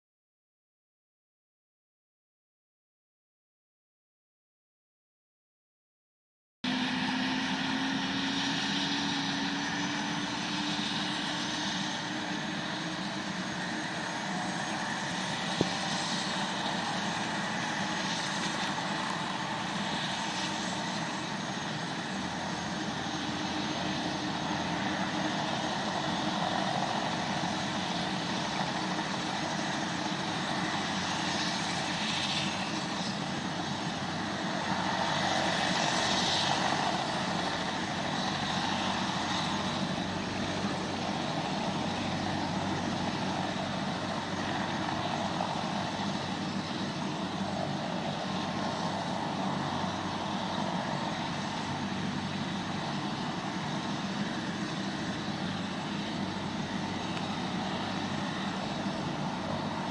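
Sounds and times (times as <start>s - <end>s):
helicopter turbine and rotor: 6.6s - 59.9s.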